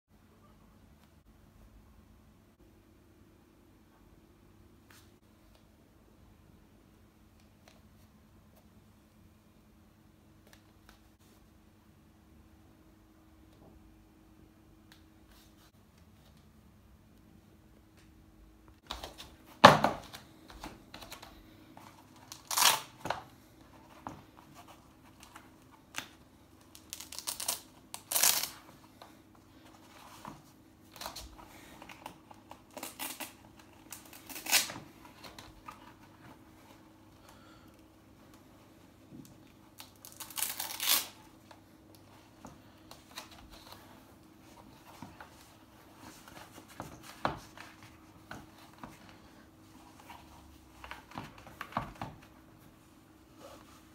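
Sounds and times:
hook-and-loop straps ripping: 22.3s - 23.1s, 26.7s - 28.6s, 32.2s - 34.8s, 39.8s - 41.3s.

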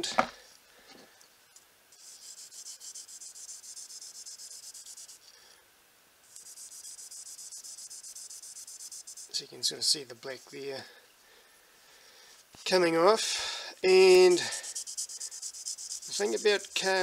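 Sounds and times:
knife scraping on sandpaper: 2.0s - 5.2s, 13.9s - 17.0s.

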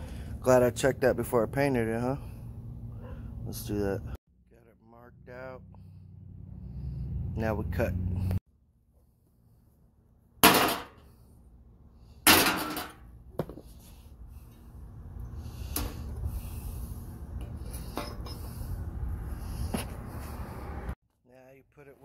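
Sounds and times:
sharp metallic bangs: 10.4s - 11.0s.

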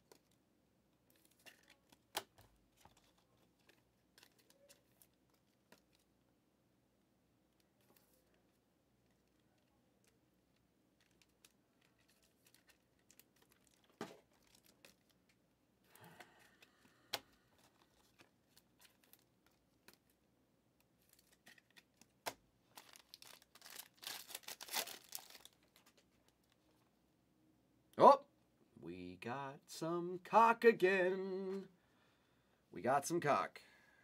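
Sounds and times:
foil wrapper tearing and crinkling: 22.7s - 25.9s.

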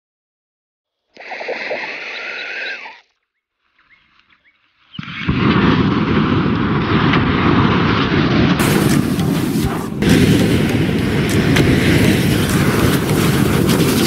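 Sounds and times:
rush of flame and crackling: 5.0s - 14.0s
butane torch hissing: 8.6s - 14.0s.

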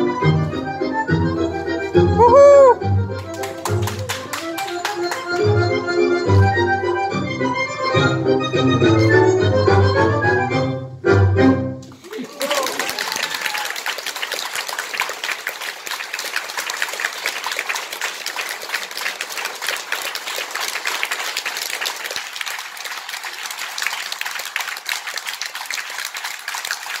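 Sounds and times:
audience applauding: 2.2s - 6.4s, 11.9s - 27.0s.

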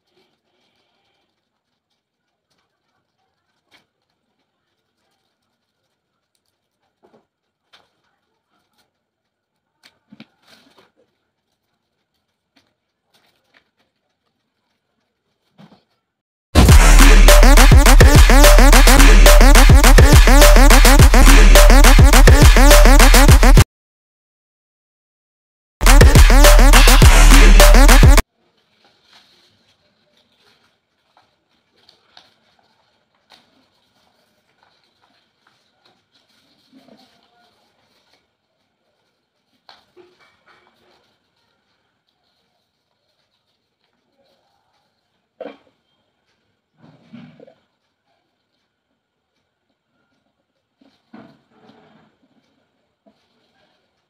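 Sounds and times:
paper rustling: 28.4s - 45.1s.

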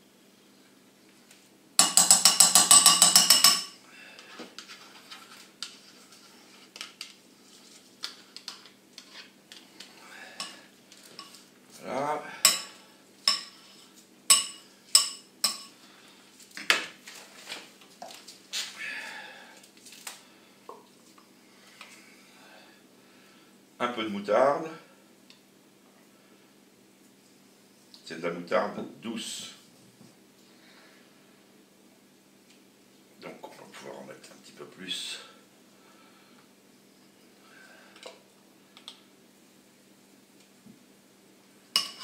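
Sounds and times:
fork clinking against bowl: 1.8s - 3.8s.

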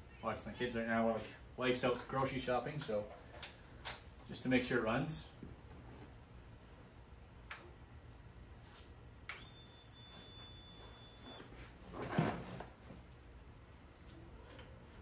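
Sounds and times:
high-pitched whine: 9.3s - 11.5s.

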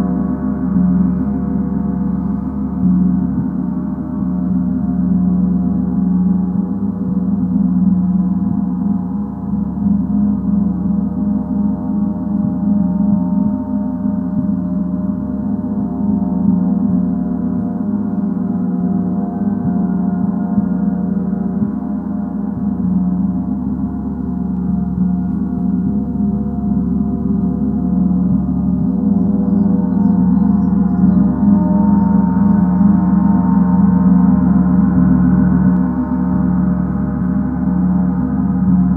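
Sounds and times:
gong sustained ringing: 0.0s - 38.9s.

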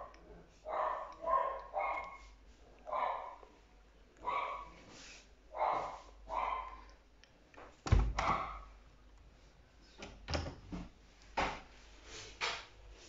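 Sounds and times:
washing machine door thunk: 7.8s - 8.6s.

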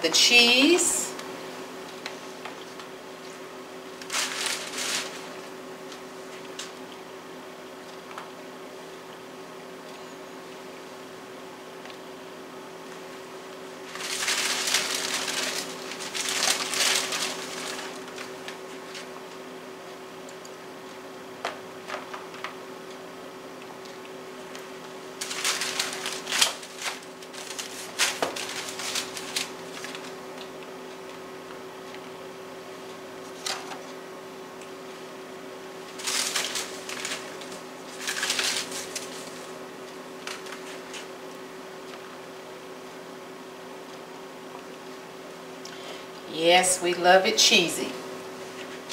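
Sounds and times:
faint steady hum: 0.0s - 48.9s
crinkly rustling: 4.0s - 6.7s, 13.8s - 19.2s, 25.2s - 30.6s, 35.8s - 41.1s.

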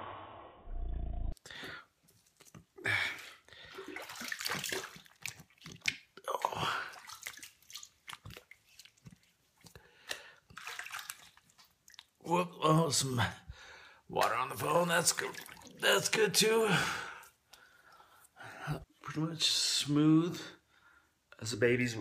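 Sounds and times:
water dripping: 1.6s - 12.3s, 14.2s - 16.2s
water splashing on face: 2.4s - 9.3s, 10.5s - 12.2s, 14.2s - 16.2s.

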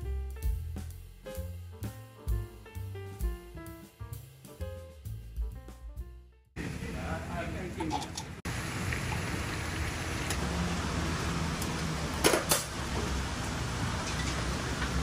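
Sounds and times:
metal utensils clinking on bowls: 7.8s - 8.3s.

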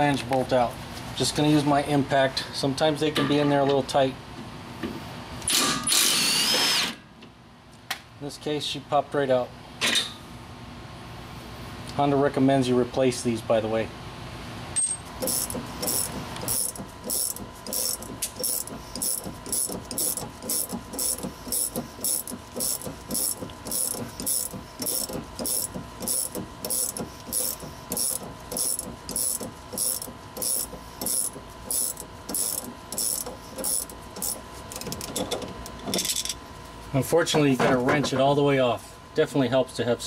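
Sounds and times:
ratchet wrench clicking: 15.2s - 35.3s.

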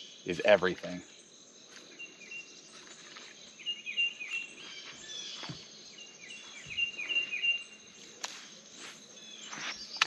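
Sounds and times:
bird chirping: 0.0s - 10.0s
high insect drone: 0.0s - 10.0s.

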